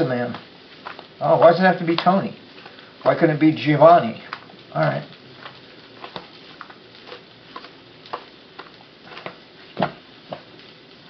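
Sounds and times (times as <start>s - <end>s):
hands patting pizza dough: 0.0s - 3.4s, 4.1s - 10.6s
dough thump: 4.3s - 10.5s.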